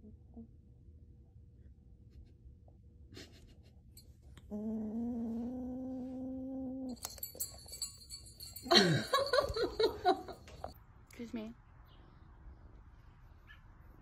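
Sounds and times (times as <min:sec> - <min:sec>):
kitten growling: 0:04.4 - 0:07.0.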